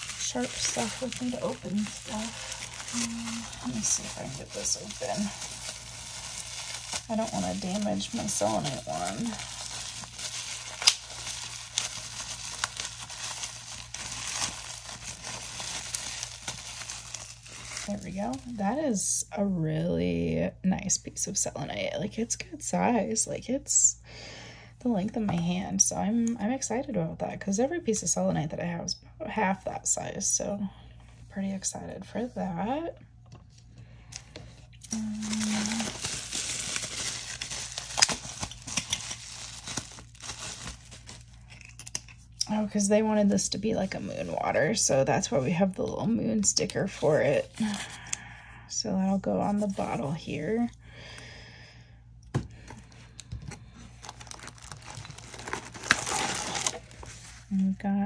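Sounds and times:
plastic wrapping crinkling: 0.0s - 18.6s, 34.1s - 42.5s, 52.6s - 57.5s.

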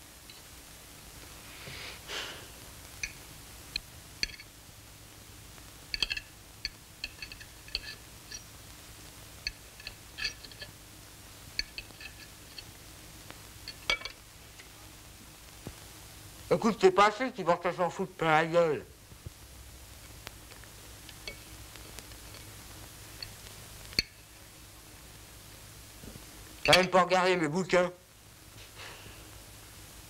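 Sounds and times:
cutlery clinking on a plate: 4.2s - 4.5s, 5.9s - 8.5s, 9.4s - 10.7s, 11.6s - 12.7s, 13.7s - 14.2s, 26.6s - 27.0s.

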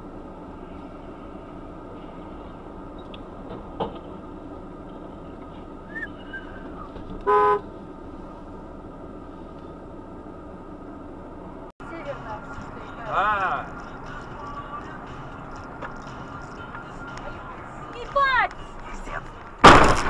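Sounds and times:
car interior hum: 0.0s - 20.0s
vehicle horn toot: 7.2s - 7.7s.

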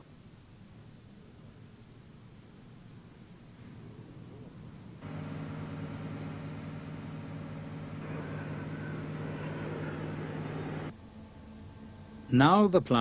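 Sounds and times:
diesel engine humming: 5.0s - 10.9s.

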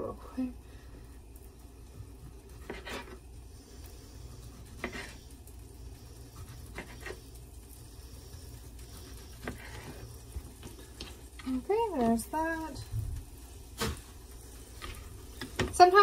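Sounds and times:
low steady hum: 0.0s - 16.0s
knife slicing tomato: 4.4s - 5.2s.

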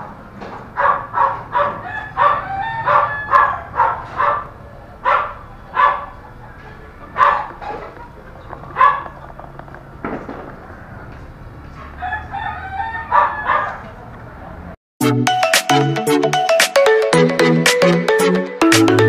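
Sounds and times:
dog barking: 0.6s - 8.0s, 8.7s - 9.2s, 11.8s - 13.9s.

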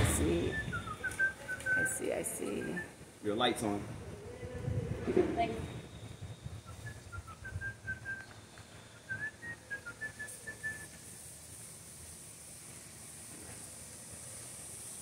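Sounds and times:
whistled tune: 0.0s - 3.0s, 5.8s - 11.1s
steady high hiss: 0.0s - 4.5s, 5.1s - 15.0s.

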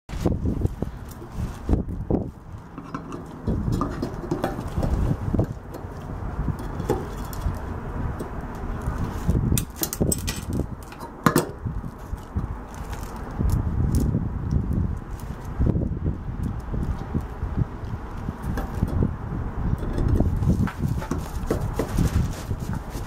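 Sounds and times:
metal clicks and scrapes: 2.5s - 15.5s, 19.7s - 23.0s.

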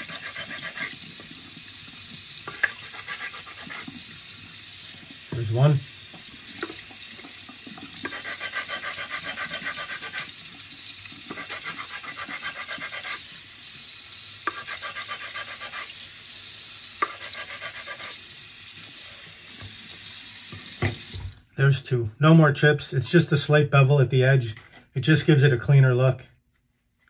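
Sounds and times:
stone grinding on stone: 0.0s - 1.0s, 2.5s - 3.9s, 8.0s - 10.4s, 11.3s - 13.3s, 14.4s - 16.0s, 17.0s - 18.2s
tap running into sink: 6.1s - 8.1s, 19.5s - 21.4s.

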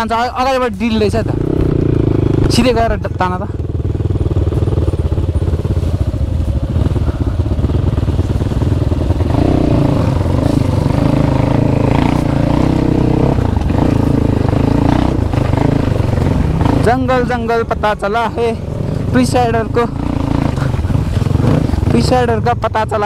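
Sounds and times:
dirt bike engine revving: 1.0s - 23.0s.

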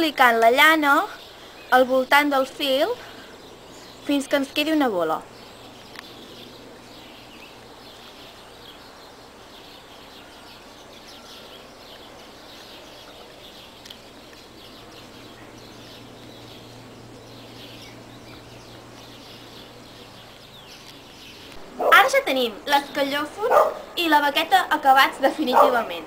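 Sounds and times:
steady low hum: 0.0s - 24.1s
small birds chirping: 0.0s - 26.0s.

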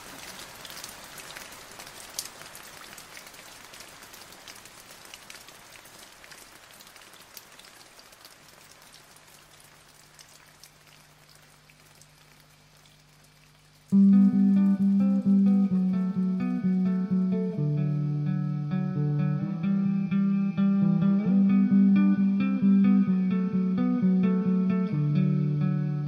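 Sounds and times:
raindrops clicking close by: 0.0s - 17.4s
rain hissing: 0.0s - 18.7s.

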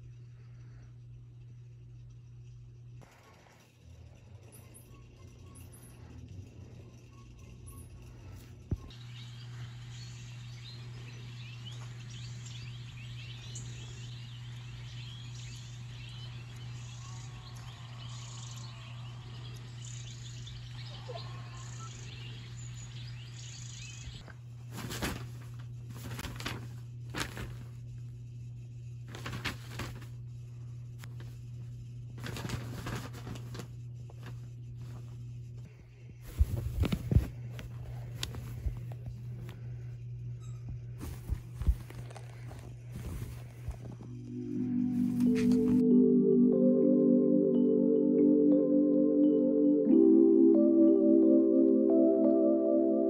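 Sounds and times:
steady low hum: 0.0s - 53.0s
birds chirping through speaker: 7.7s - 24.2s
rustling bursts: 24.6s - 27.9s, 29.1s - 30.2s, 32.1s - 35.2s, 36.2s - 39.9s, 41.0s - 44.1s.

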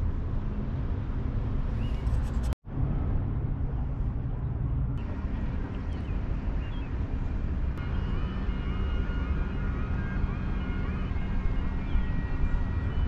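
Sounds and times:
wind on microphone: 1.6s - 13.0s
wavering high-pitched wail: 7.8s - 13.0s.

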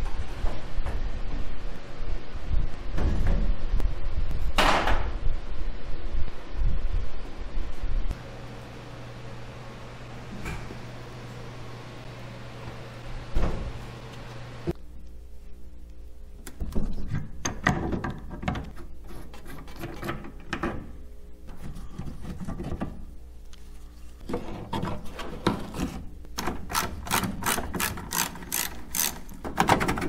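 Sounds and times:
mechanical clicking and rattling: 26.4s - 30.0s.

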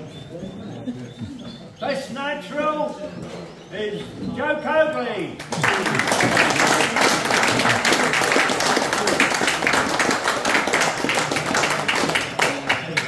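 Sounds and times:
audience applauding: 5.4s - 13.0s.

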